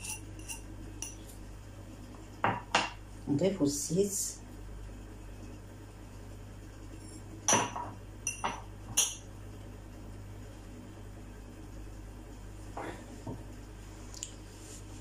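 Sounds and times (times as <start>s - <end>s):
glass clinking against bowl: 0.0s - 1.2s, 7.5s - 9.2s.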